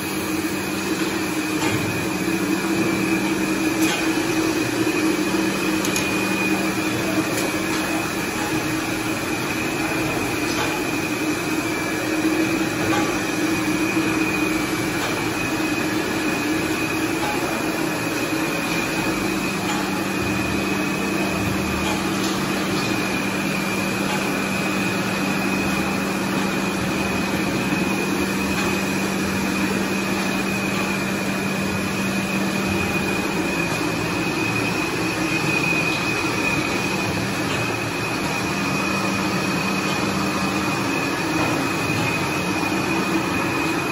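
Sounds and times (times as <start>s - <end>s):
bottling machine hum: 0.0s - 43.9s.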